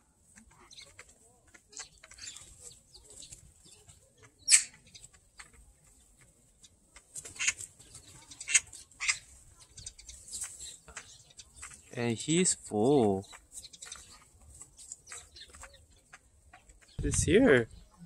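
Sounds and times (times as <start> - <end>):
wings flapping: 0.3 - 9.4
magpies harsh calls: 1.7 - 2.6, 3.2 - 5.6, 7.2 - 12.0.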